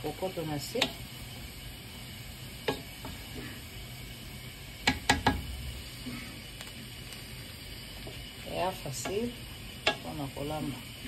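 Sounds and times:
low sizzle: 0.0s - 11.0s
rice stirred in a pot: 0.0s - 11.0s
spoon knocking on pot: 4.8s - 5.5s.

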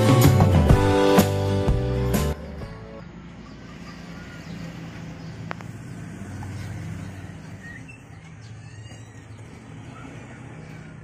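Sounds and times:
faint bird chirps: 3.3s - 5.7s, 6.5s - 11.0s.

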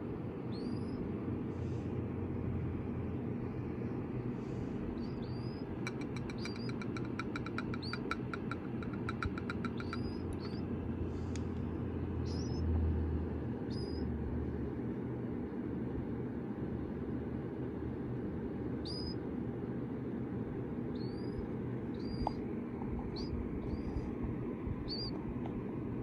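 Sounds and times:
low hum: 0.0s - 26.0s
chicks peeping: 4.9s - 11.5s, 12.2s - 12.7s, 13.7s - 14.1s, 20.9s - 24.2s, 24.8s - 25.5s
rapid ticking notes: 5.8s - 10.6s.

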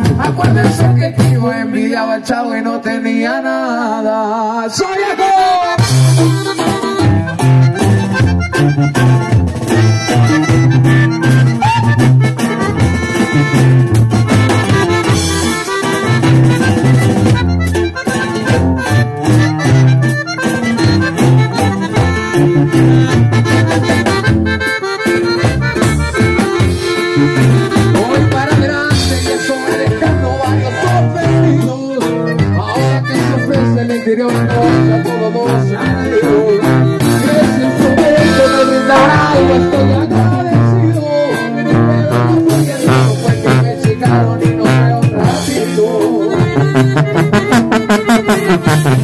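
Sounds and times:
sousaphone bass line: 0.0s - 2.0s, 5.7s - 49.0s
accordion melody: 0.0s - 3.0s, 5.7s - 49.0s
guitar: 0.0s - 4.0s, 4.7s - 49.0s
drum kit dance beat: 5.8s - 31.6s, 42.5s - 49.0s.

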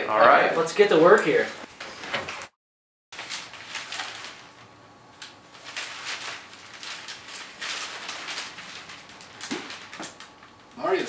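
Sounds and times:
newspaper pages rustling: 3.2s - 11.0s.

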